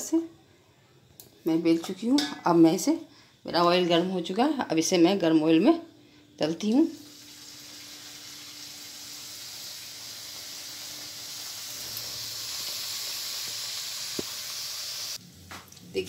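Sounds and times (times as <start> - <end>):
dough sizzling in hot oil: 6.8 - 15.8.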